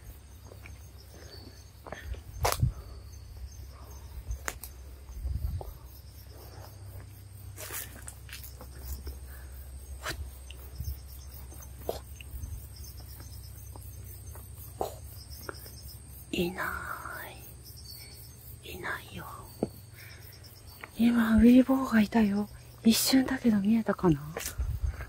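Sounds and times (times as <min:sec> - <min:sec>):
rustles: 0:00.0 - 0:17.3
insects chirring: 0:00.0 - 0:25.0.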